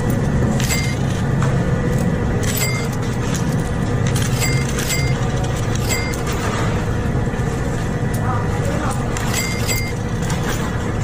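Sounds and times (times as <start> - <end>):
coins clinking on counter: 0.0 - 6.7, 8.8 - 10.8
low room hum: 0.0 - 11.0.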